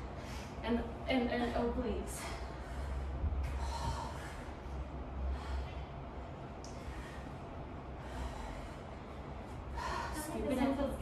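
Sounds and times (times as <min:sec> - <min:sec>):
low rumble: 0:00.0 - 0:11.0
woman breathing heavily: 0:00.0 - 0:11.0.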